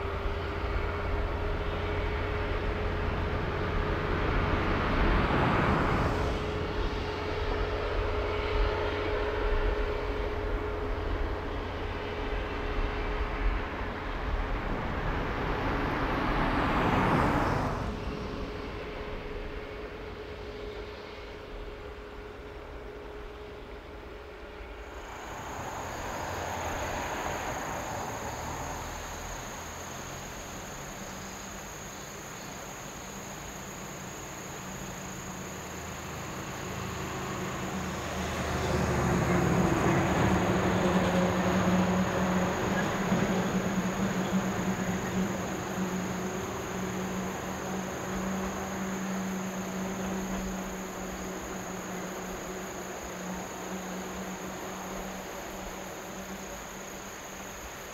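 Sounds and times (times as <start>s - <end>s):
diesel railcar running: 0.0s - 57.9s
insects trilling: 24.7s - 57.9s.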